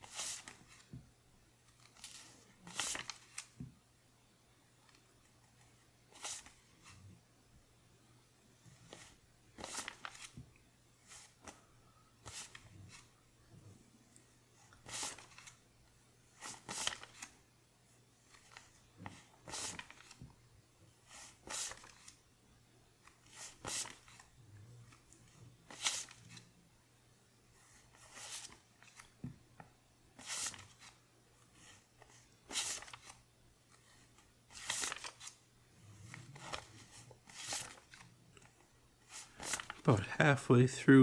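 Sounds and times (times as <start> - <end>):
paper bills rustling: 1.7 - 3.6, 8.9 - 10.4, 14.8 - 15.6, 16.4 - 17.4, 18.3 - 20.2, 21.1 - 22.2, 23.0 - 24.3, 25.6 - 26.5, 30.2 - 31.0, 31.6 - 35.4, 36.0 - 40.1.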